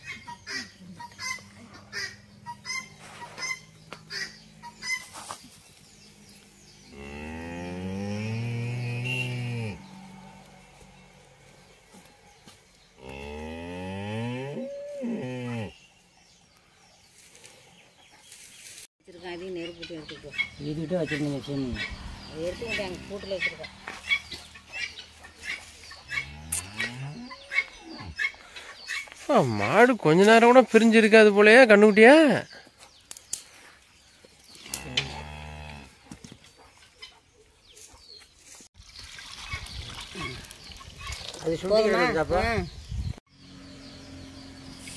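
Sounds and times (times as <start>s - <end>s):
cow mooing: 6.8s - 11.8s, 13.0s - 15.8s, 22.3s - 23.8s, 26.1s - 27.7s, 34.7s - 36.0s.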